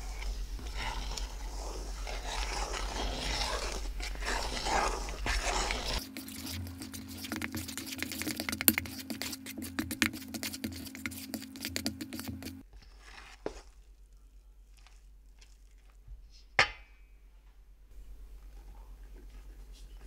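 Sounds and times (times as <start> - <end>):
knife scraping bowl: 0.0 - 13.8.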